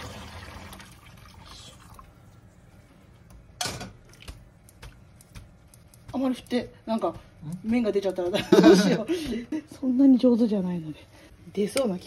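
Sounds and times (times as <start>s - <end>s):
hot water splashing into strainer: 0.0s - 2.1s.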